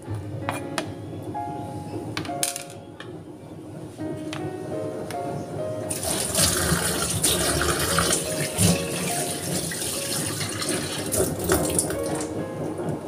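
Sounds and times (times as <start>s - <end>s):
tap water running into sink: 5.9s - 12.3s.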